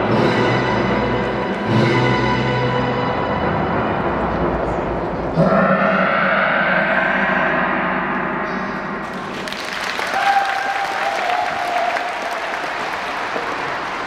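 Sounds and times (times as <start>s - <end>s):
audience applause: 9.1s - 14.0s.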